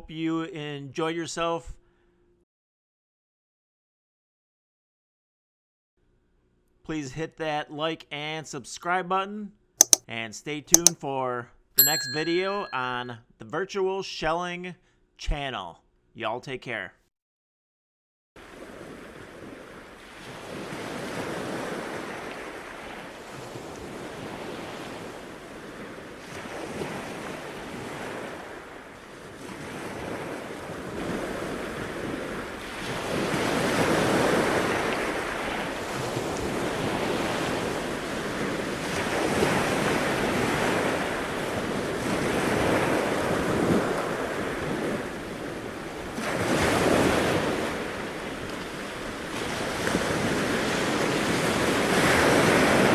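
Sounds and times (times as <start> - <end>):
surf washing up the beach: 18.4 - 52.9.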